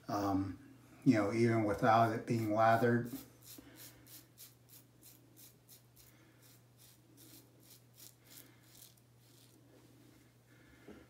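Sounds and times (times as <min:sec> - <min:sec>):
razor scraping stubble: 0:02.2 - 0:09.7.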